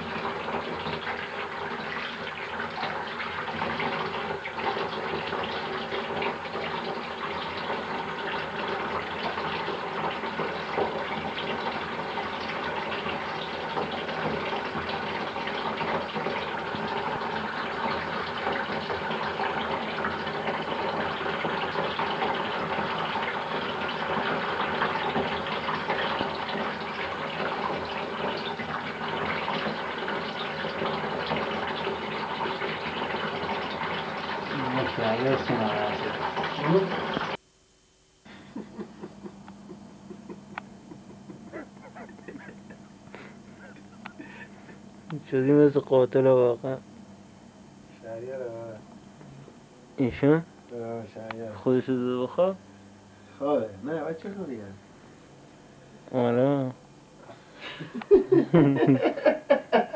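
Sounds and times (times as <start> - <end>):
water gushing: 0.0 - 37.4.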